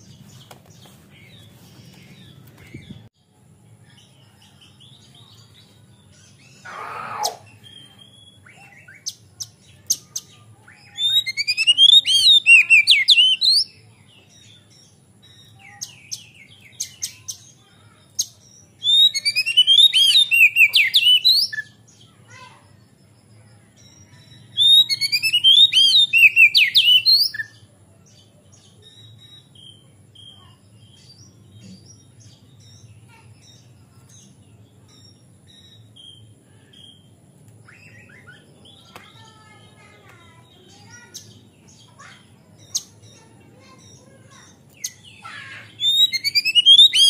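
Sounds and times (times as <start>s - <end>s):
bird singing whistled notes: 3.9s - 9.2s, 9.9s - 17.5s, 18.2s - 21.8s, 23.8s - 27.7s, 34.9s - 38.9s, 42.6s - 47.0s.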